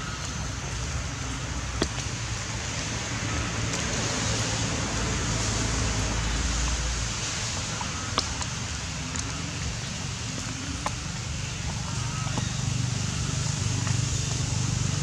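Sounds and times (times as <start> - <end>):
low steady hum: 0.0 - 15.0
steady rain falling: 0.0 - 15.0.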